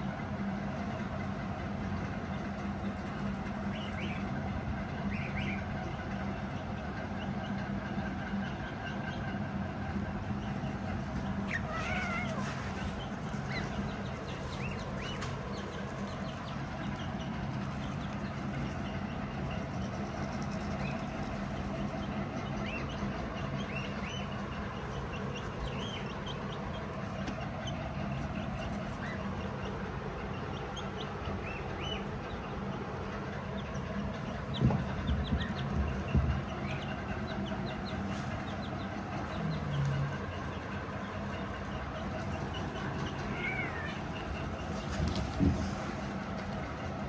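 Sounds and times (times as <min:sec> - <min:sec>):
steady low hum: 0:00.0 - 0:47.0
kittens mewing: 0:11.4 - 0:12.8, 0:43.1 - 0:44.4.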